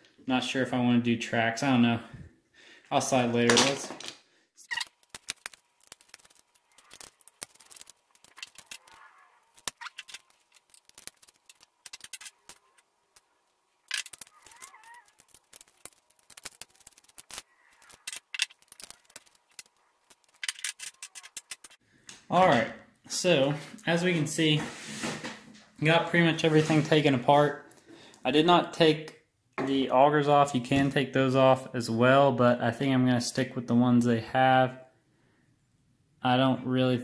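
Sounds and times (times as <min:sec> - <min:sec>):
plastic model parts clicking: 0:13.9 - 0:21.8.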